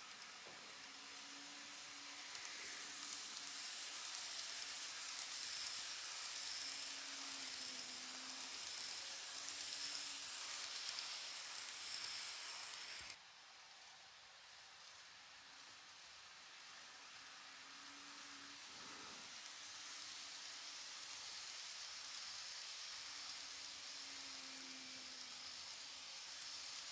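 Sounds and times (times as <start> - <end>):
model train rolling rattle: 0.0 - 26.9.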